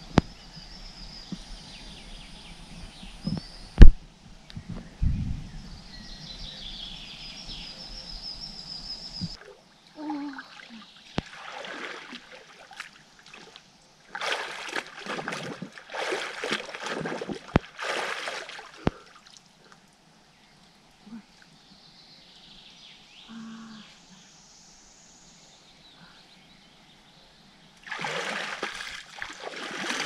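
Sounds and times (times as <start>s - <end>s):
water splashing and trickling: 9.3s - 21.5s, 27.8s - 30.0s.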